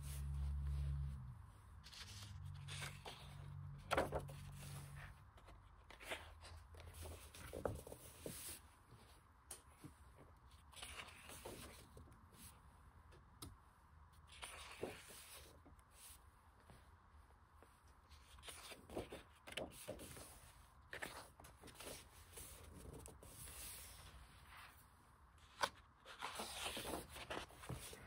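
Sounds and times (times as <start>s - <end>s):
book pages turning: 1.8s - 8.6s, 9.6s - 12.5s, 14.2s - 16.2s, 18.1s - 28.0s.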